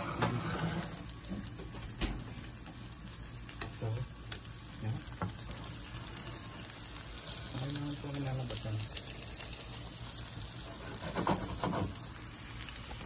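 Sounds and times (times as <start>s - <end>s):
patties sizzling in oil: 0.0s - 13.0s
spatula tapping and scraping: 10.7s - 12.0s.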